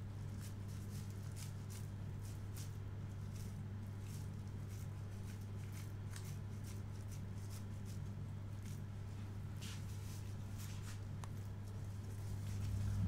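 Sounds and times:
steady low hum: 0:00.0 - 0:13.0
hands squishing minced meat: 0:00.2 - 0:08.9.

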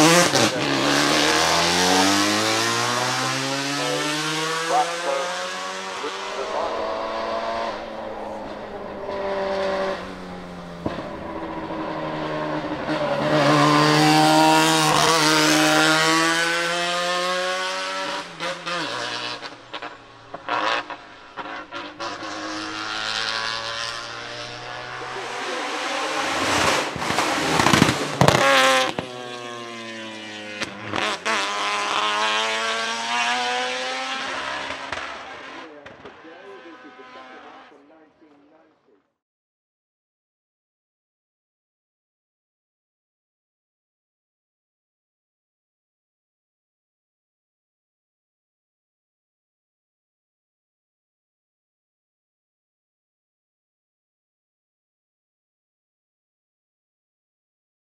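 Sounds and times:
race car engine accelerating: 0:00.0 - 0:37.8
engine sharp crack: 0:25.0 - 0:29.3.

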